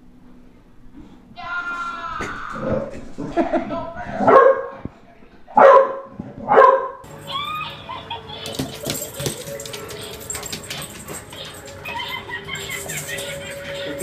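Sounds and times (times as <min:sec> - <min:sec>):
dog barking: 0:04.2 - 0:04.8, 0:05.6 - 0:07.0.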